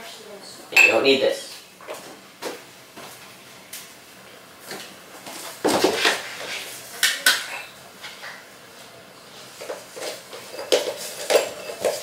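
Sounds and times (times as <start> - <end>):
metal measuring cups clinking: 10.0 - 12.0.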